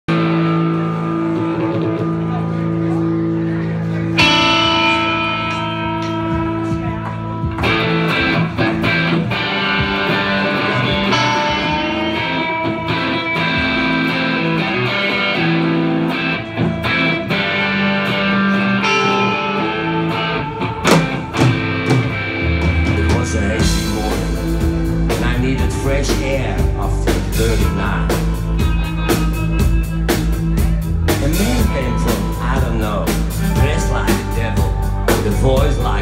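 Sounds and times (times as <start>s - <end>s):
electric guitars playing chords: 0.1s - 36.0s
drum hits: 20.8s - 32.8s.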